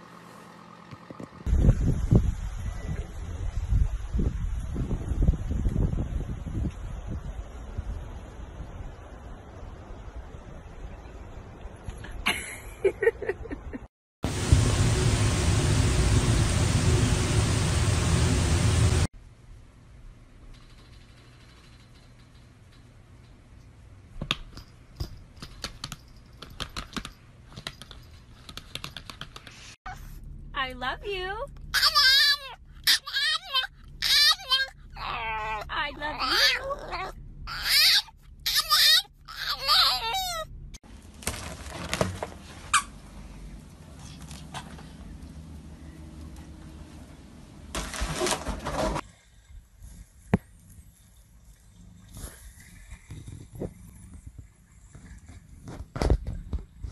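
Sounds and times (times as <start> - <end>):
laptop keyboard typing: 25.4 - 29.6
foil balloon crinkling: 40.9 - 42.8, 47.7 - 49.0.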